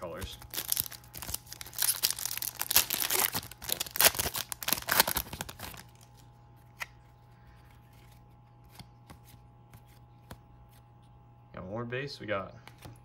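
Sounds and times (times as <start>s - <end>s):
wrapper tearing and crinkling: 0.3s - 6.2s.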